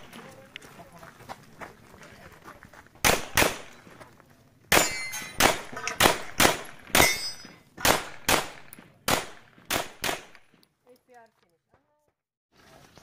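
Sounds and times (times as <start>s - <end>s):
handgun shots: 3.0s - 3.7s, 4.7s - 10.5s.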